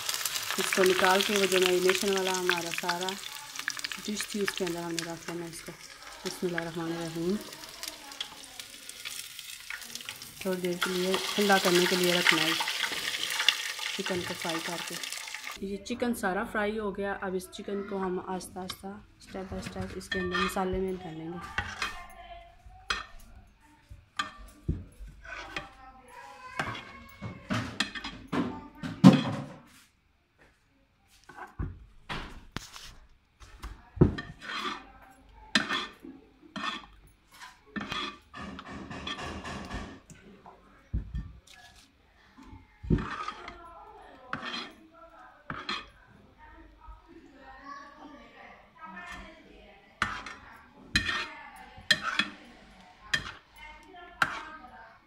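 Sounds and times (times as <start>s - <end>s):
plastic spoon scraping metal bowl: 36.6s - 39.4s, 42.9s - 43.6s.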